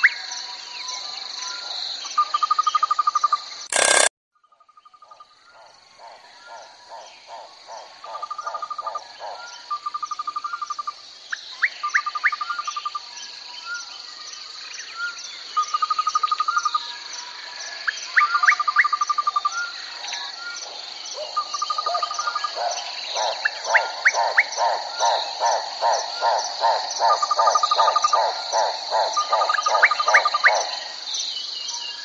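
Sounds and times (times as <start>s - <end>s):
high insect drone with ticks: 0.0s - 32.0s
rapid low pulsing calls: 3.7s - 4.1s
trilling calls: 20.1s - 30.9s.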